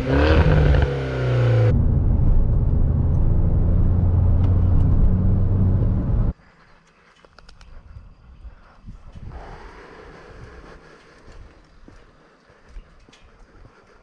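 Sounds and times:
car engine and exhaust from inside: 0.0s - 6.4s.

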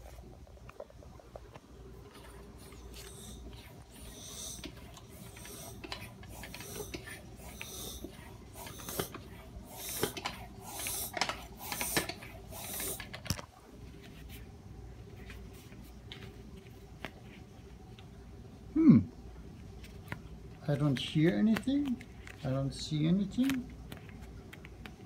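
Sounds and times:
bicycle pump strokes: 2.0s - 13.4s.

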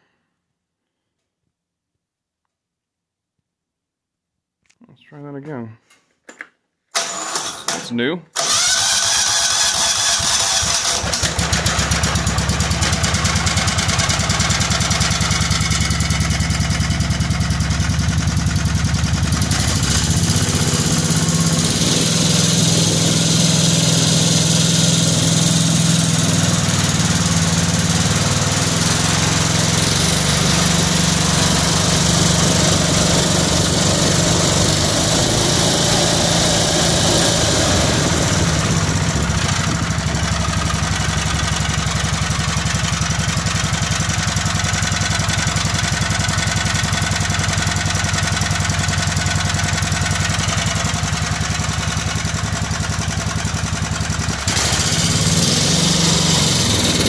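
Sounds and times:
single-cylinder engine running: 8.4s - 57.0s.

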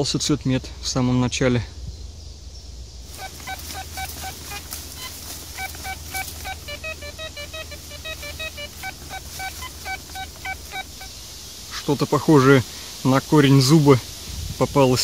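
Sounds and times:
metal detector beeping: 3.1s - 11.2s.

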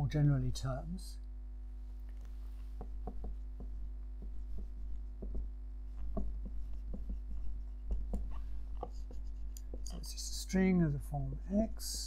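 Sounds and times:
low electrical hum: 0.0s - 12.0s
pen tapping and scraping on paper: 2.8s - 10.1s.

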